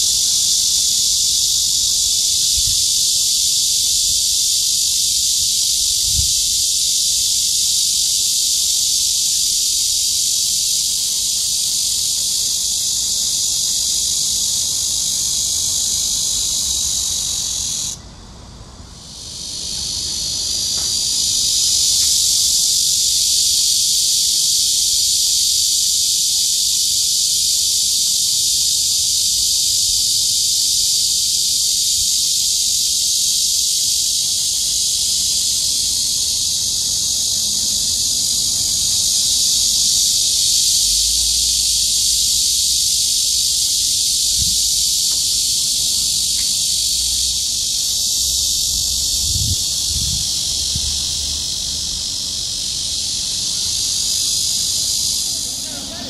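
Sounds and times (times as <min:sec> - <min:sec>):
cicada buzzing: 0:00.0 - 0:56.0.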